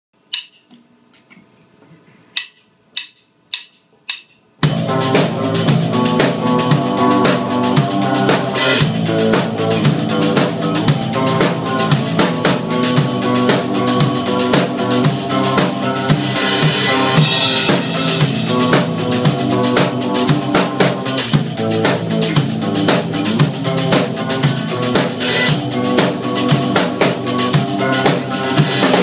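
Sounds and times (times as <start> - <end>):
sharp clicks: 0.3 - 1.3
recorded song: 1.9 - 29.0
drum kit dance groove: 2.4 - 29.0.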